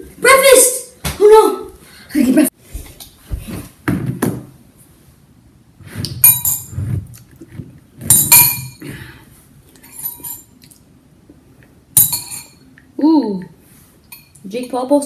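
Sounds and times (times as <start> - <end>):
ceramic bowl clinking: 8.0 - 8.9, 12.0 - 12.7.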